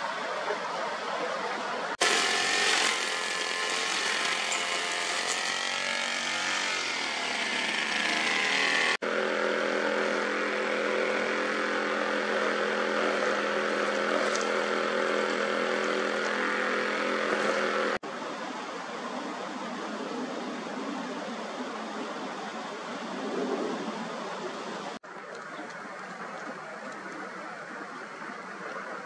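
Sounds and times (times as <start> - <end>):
engine running: 1.9 - 18.0.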